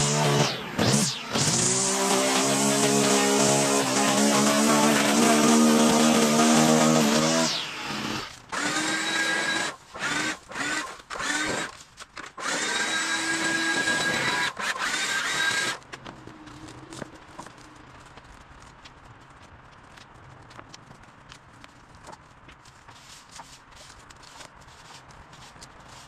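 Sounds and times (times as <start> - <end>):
line trimmer engine: 0.0 - 15.8
power tool motor bursts: 0.0 - 15.8.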